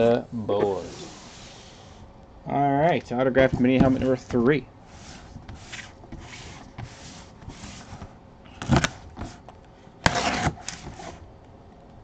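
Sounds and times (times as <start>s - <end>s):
cardboard box rubbing: 4.9s - 8.2s, 10.0s - 11.2s.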